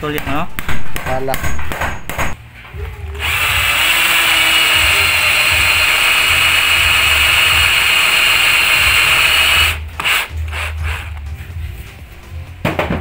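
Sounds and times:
cordless drill whining: 3.2 - 11.1.

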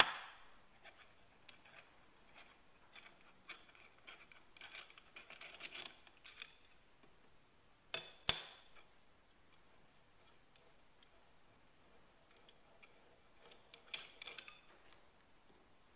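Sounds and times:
metal parts clicking and scraping: 0.8 - 6.8, 9.5 - 15.1.

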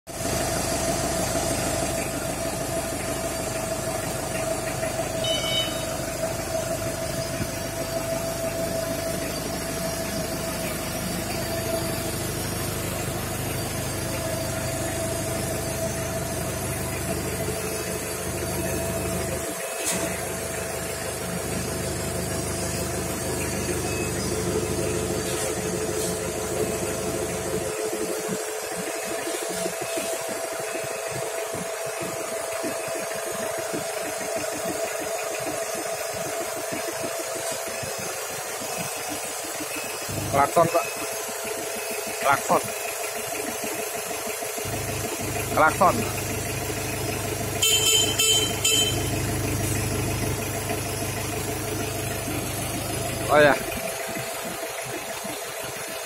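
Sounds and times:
diesel engine running: 0.1 - 56.0
lower steady tone: 2.1 - 12.1
steady tone: 2.4 - 9.5.

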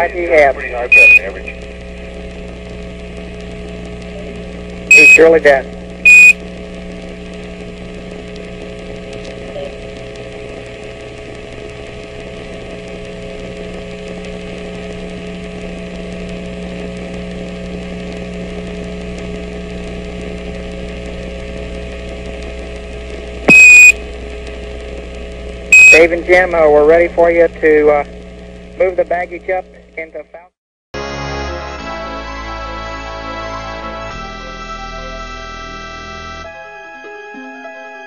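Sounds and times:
radio hiss and hum: 0.0 - 30.6
short radio beep: 0.9 - 1.3, 4.9 - 5.4, 6.1 - 6.4, 23.5 - 24.0, 25.8 - 26.1.

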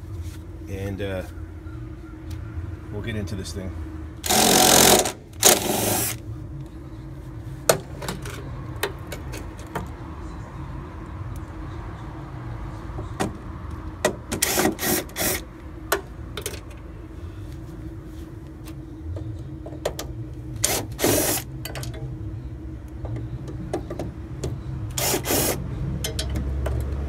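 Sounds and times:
steady low hum: 0.0 - 27.0
cordless screwdriver whirring: 4.2 - 6.2, 24.9 - 25.6.

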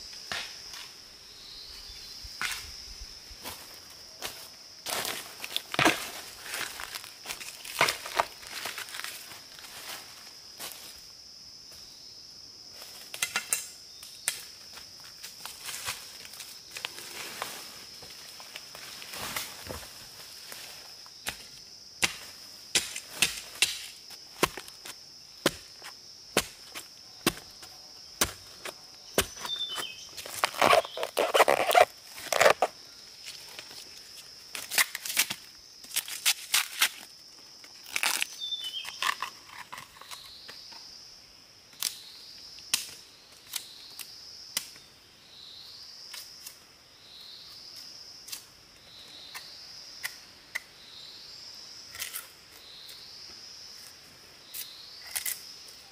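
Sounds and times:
high insect drone: 0.0 - 55.9
rustling: 28.2 - 32.7.

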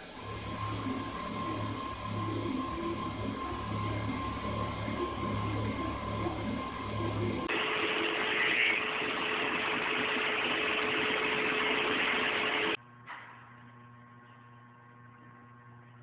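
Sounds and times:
low steady hum: 0.0 - 7.5.

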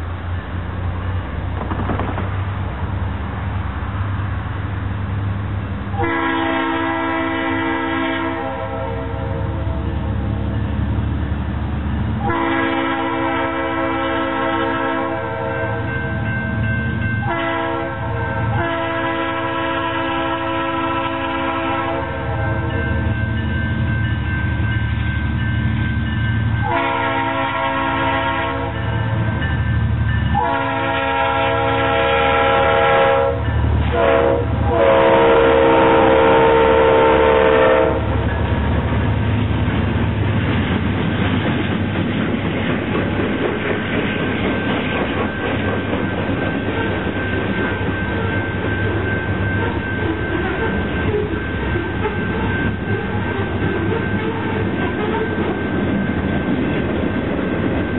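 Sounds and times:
freight cars rolling: 0.0 - 6.0
locomotive air horn blasts: 5.9 - 9.9, 12.2 - 16.0, 17.2 - 22.9, 26.6 - 29.0, 30.3 - 38.2.

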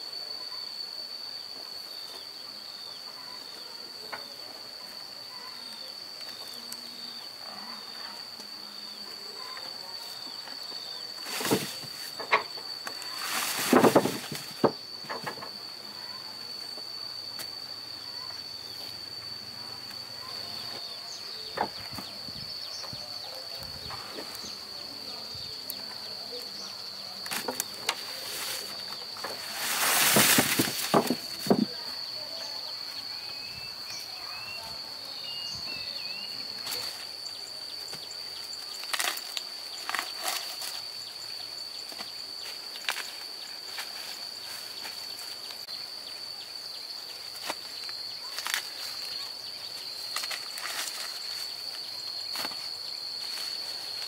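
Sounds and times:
high-pitched insect drone: 0.0 - 54.0
dry corn husks rustling: 9.4 - 16.1, 22.8 - 32.0, 36.0 - 45.6, 47.1 - 54.0.

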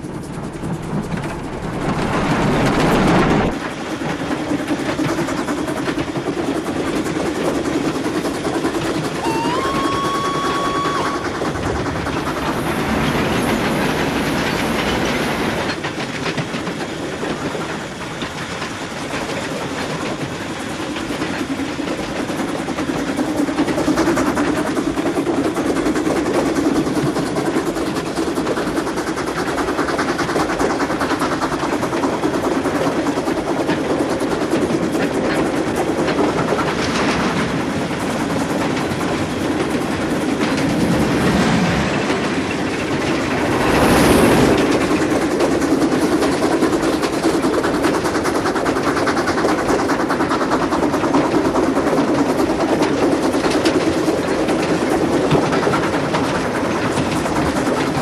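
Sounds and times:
train wheel and wind noise: 0.0 - 58.0
wheels clattering over rails: 0.0 - 58.0.

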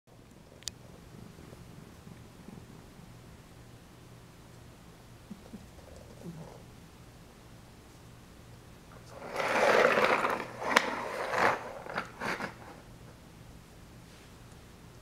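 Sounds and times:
toy car wheels rolling on floor: 9.0 - 12.8.

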